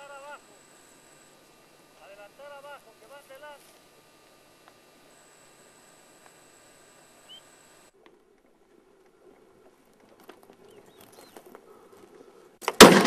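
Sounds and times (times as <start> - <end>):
bird chirps: 7.2 - 7.6, 10.6 - 11.5
footsteps in dry scrub: 8.0 - 12.4
shotgun shot: 12.7 - 13.0.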